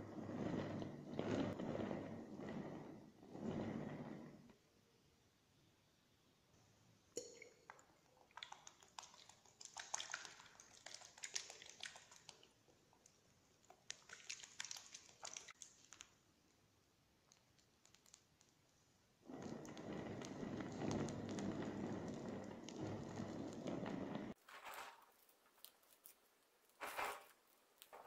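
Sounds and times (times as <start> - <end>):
scratchy dabbing on cake: 19.3 - 28.0.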